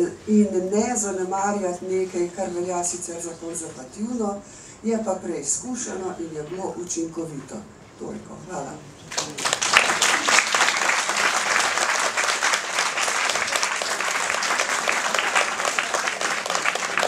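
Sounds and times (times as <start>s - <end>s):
audience applauding: 9.1s - 17.0s.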